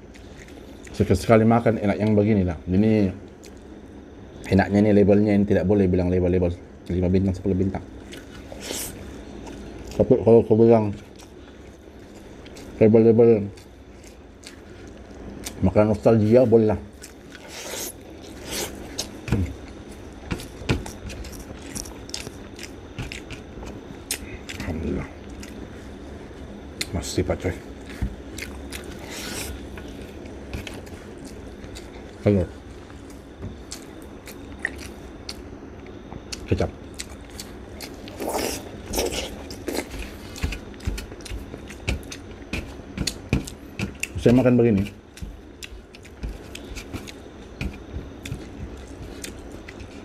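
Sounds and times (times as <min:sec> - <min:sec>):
person chewing food: 0:00.0 - 0:01.0, 0:03.4 - 0:03.8, 0:08.0 - 0:10.1, 0:11.0 - 0:12.8, 0:13.4 - 0:15.6, 0:16.9 - 0:26.9, 0:27.6 - 0:50.0.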